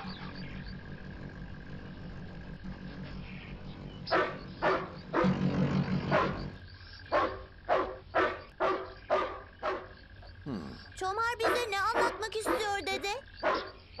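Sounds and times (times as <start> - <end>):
motorcycle engine running: 0.0 - 8.1
dog barking: 4.1 - 5.3, 7.1 - 10.0, 11.4 - 12.8, 13.4 - 13.8.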